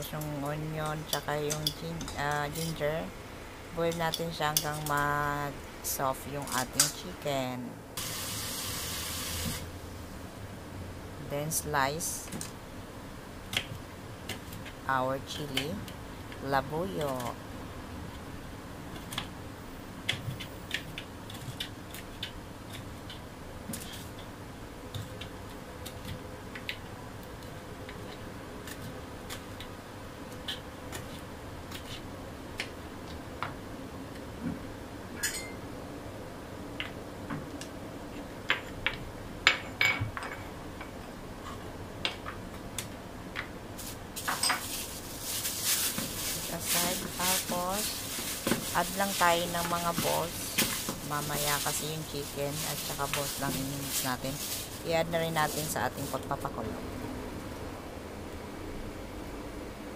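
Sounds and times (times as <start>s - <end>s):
plastic bag crinkling: 43.8s - 56.4s.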